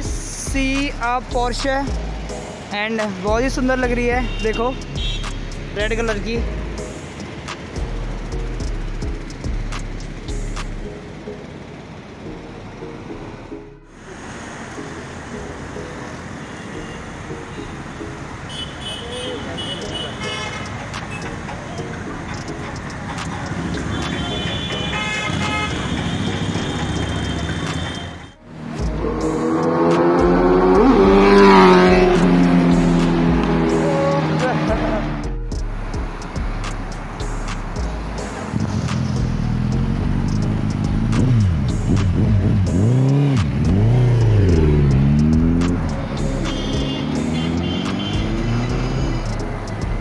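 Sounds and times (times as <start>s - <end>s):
engine and tyre noise: 0.0s - 50.0s
car horns honking: 4.1s - 5.6s, 16.4s - 28.4s, 46.0s - 49.3s
heavy engine rumble: 20.6s - 29.6s, 30.2s - 47.3s.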